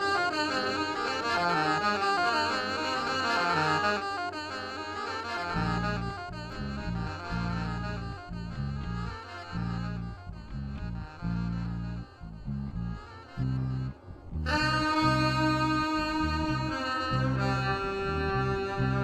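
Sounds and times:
alto saxophone melody: 0.0s - 19.0s
deep electric bass notes: 5.5s - 19.0s.

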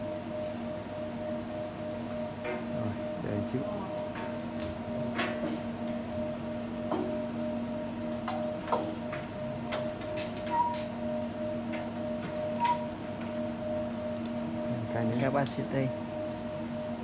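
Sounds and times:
electrical hum: 0.0s - 17.0s
short beeps: 0.9s - 1.6s.

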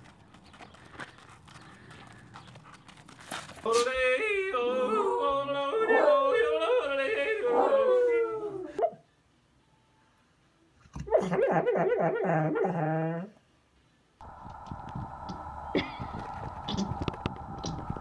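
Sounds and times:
man yodeling: 3.7s - 8.8s
dog howling: 4.8s - 8.9s, 11.1s - 13.3s.

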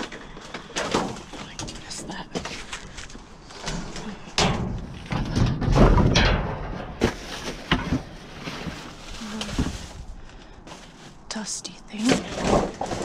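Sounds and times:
trash thumping in metal dumpster: 3.7s - 9.0s.

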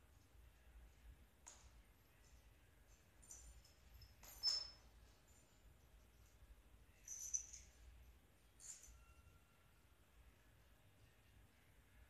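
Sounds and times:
faint high-pitched squeak: 2.9s - 5.7s, 6.9s - 10.0s.

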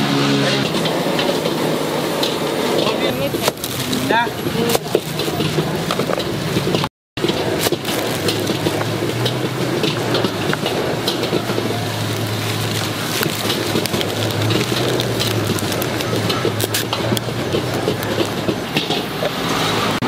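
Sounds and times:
plastic and paper crinkling: 3.1s - 6.3s, 7.2s - 19.1s.

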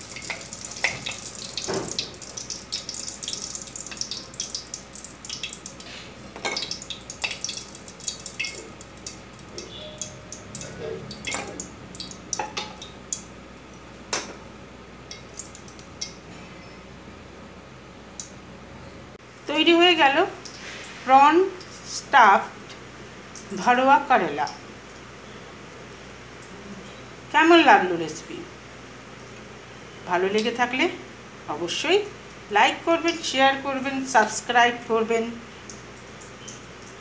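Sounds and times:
food sizzling in hot oil: 0.0s - 13.3s.

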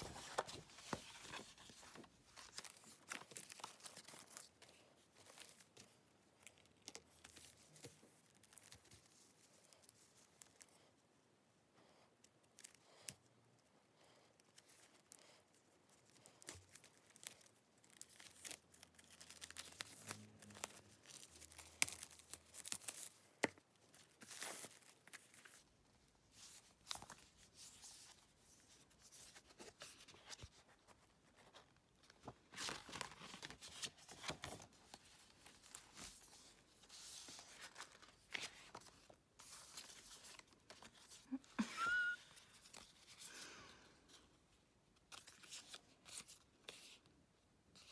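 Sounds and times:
paper rustling: 0.0s - 10.8s, 14.6s - 25.7s, 26.3s - 44.3s, 45.0s - 47.0s
plastic wrap crinkling and tearing: 16.2s - 25.6s.

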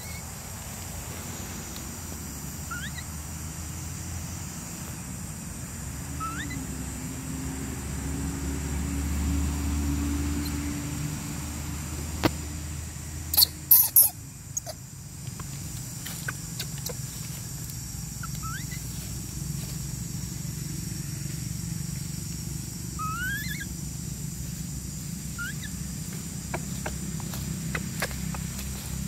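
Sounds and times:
low outdoor rumble: 0.0s - 29.0s
faint rising squeaks: 16.2s - 19.2s, 22.9s - 29.0s.

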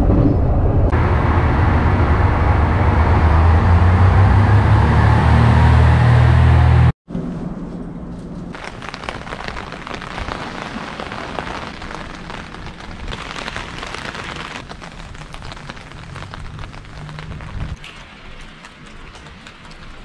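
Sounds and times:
drops hitting wet surfaces: 8.6s - 20.0s
rain falling: 8.6s - 20.0s.

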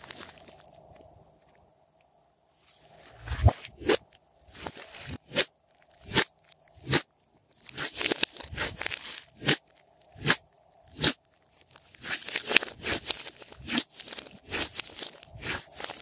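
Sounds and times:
slime crackling and popping: 5.8s - 16.0s.

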